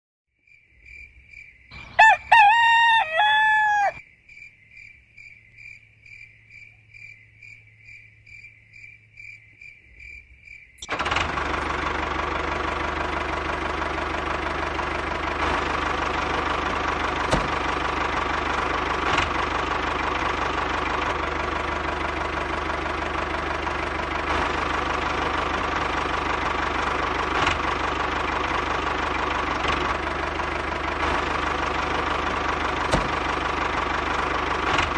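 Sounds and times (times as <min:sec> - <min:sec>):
rooster crowing: 0:01.7 - 0:04.0
tractor engine running: 0:01.7 - 0:04.0, 0:10.8 - 0:34.9.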